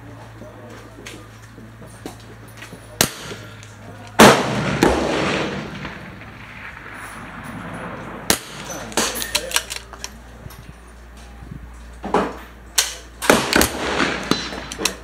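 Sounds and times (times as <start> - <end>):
rifle shots: 3.0 - 3.6, 4.2 - 9.9, 12.8 - 15.0.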